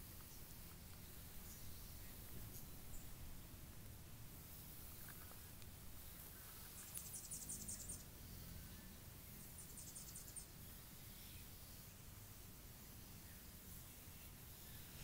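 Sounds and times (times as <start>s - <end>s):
small animal chirping trills: 4.5s - 8.6s, 9.4s - 11.4s.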